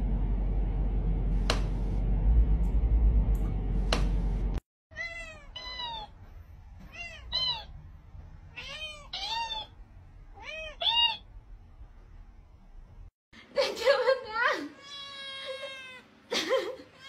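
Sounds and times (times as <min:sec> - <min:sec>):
loud low rumble: 0:00.0 - 0:04.6
cat meowing: 0:04.9 - 0:06.1, 0:08.5 - 0:09.7, 0:10.3 - 0:11.2.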